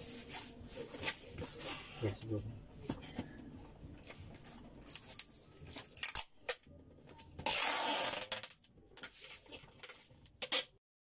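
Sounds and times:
packing tape pulled off roll: 4.8s - 10.8s.

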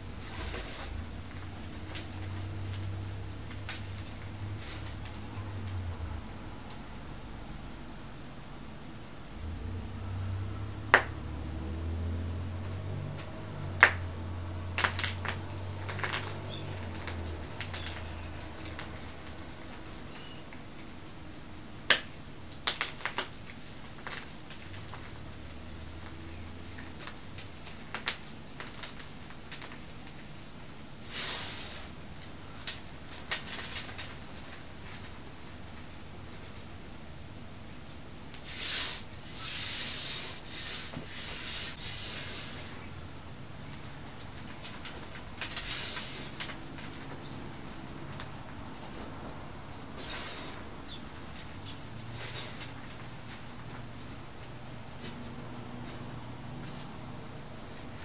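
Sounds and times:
chalk snapping: 10.9s - 11.2s, 12.6s - 14.1s, 14.7s - 20.9s
hands sweeping powder on marble: 31.1s - 31.9s, 38.4s - 42.8s
chalk crunching: 38.4s - 42.8s.

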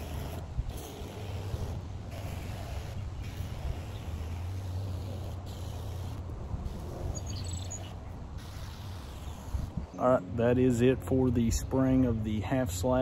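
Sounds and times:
sprayer pump humming: 0.0s - 6.9s
spray hissing from wand: 0.0s - 9.8s.

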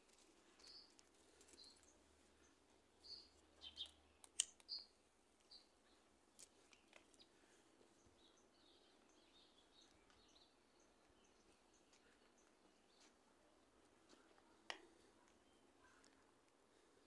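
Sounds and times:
birds chirping: 0.5s - 13.2s
sharp clicks: 3.8s - 4.9s.

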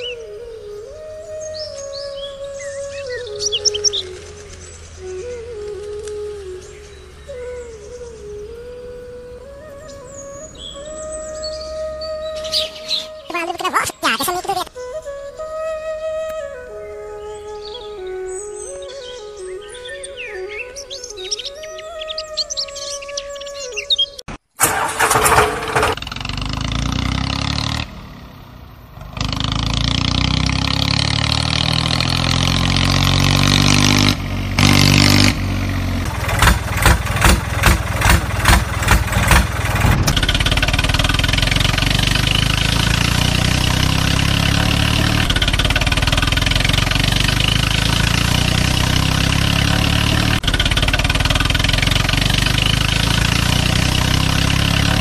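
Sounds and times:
tractor engine revving: 24.5s - 55.0s.

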